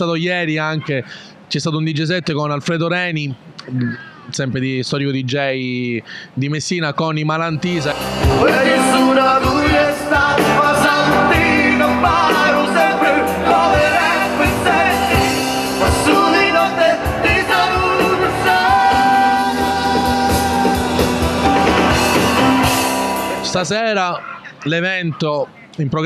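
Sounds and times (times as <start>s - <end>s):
singer's vocals: 7.5s - 22.6s
drums: 7.8s - 23.5s
electric guitar: 7.8s - 23.5s.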